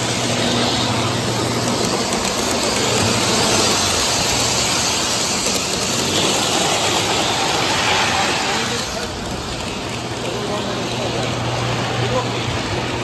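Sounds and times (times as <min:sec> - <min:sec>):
model trains hissing: 0:00.0 - 0:13.0.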